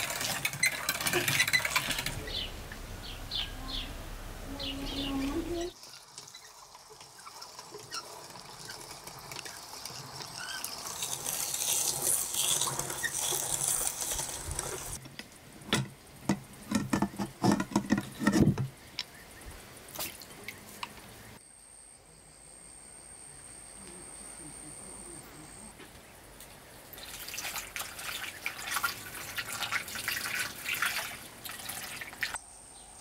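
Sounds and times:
grinder crank clunks and knocks: 15.7 - 18.7.

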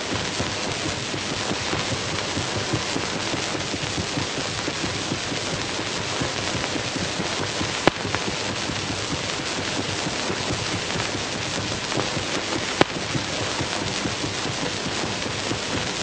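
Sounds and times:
dense crackling of small clicks: 0.1 - 16.0
sharp loud clicks: 7.7 - 8.3.

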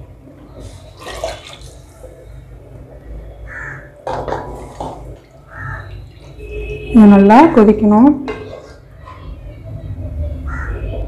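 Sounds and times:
liquid sloshing in pot: 0.5 - 2.4, 4.2 - 6.9
bird calling: 5.4 - 6.2
spatula scraping pot: 8.2 - 9.0.

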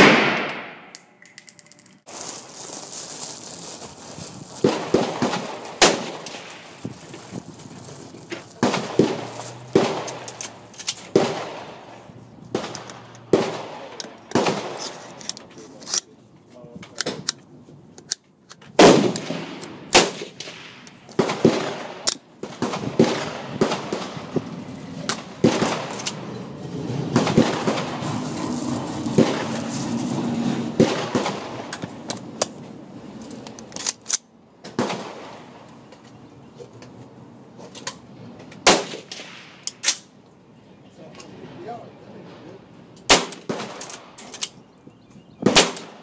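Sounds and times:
gunshots echoing: 0.0 - 1.9, 8.6 - 10.3, 11.1 - 11.9, 12.5 - 14.8, 18.8 - 24.4.

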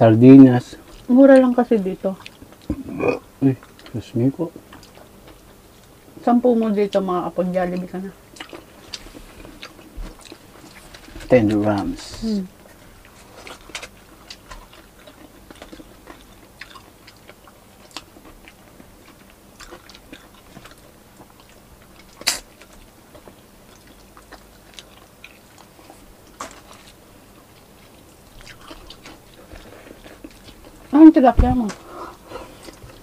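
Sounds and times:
people chewing: 0.7 - 33.0.

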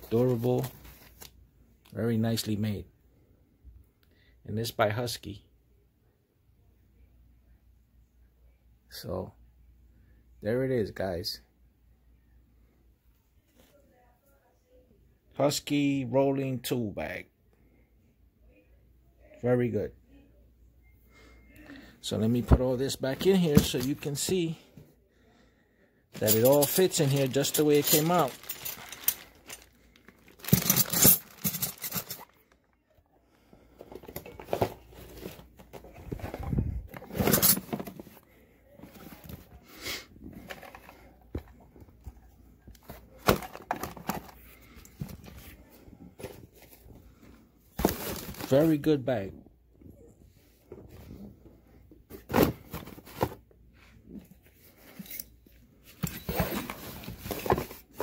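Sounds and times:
cardboard rustling and crinkling: 0.0 - 1.4, 26.2 - 32.6, 33.8 - 39.6, 47.8 - 48.9, 52.1 - 53.5, 56.0 - 58.0
plastic packaging crinkling: 26.2 - 32.6.

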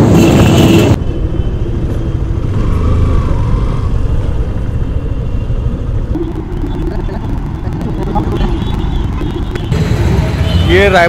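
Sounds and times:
traffic rumble: 0.0 - 11.0
motorcycle engine: 3.6 - 10.8.

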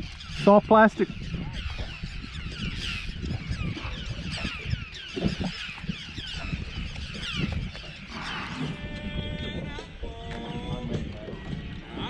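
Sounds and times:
flock of birds calling: 0.0 - 9.1.

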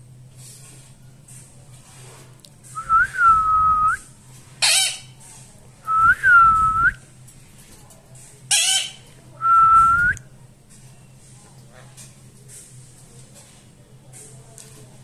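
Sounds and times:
parakeet screeching: 4.6 - 5.1, 8.5 - 9.0.

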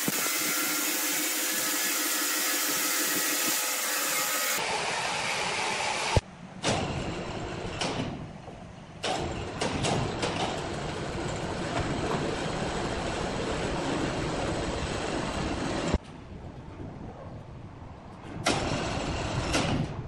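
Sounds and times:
sawmill machinery rattling: 0.0 - 16.0.

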